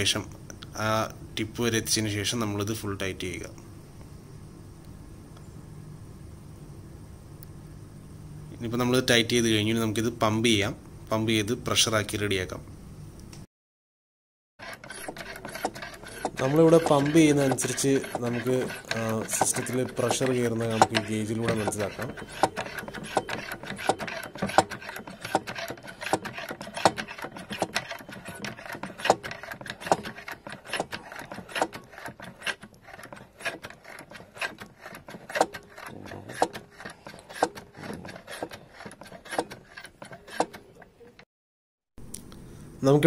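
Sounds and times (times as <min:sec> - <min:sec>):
hand pump clicking and knocking: 0:14.6 - 0:40.9.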